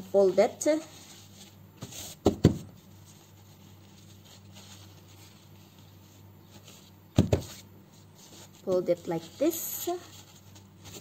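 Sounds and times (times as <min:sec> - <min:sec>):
faint steady low hum: 0:00.0 - 0:11.0
knocks against a tabletop: 0:02.2 - 0:02.7, 0:07.2 - 0:07.5.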